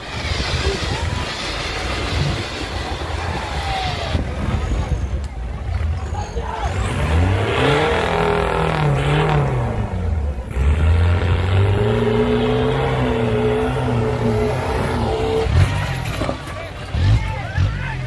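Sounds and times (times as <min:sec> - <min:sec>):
jeep engine revving hard: 0:06.6 - 0:16.2.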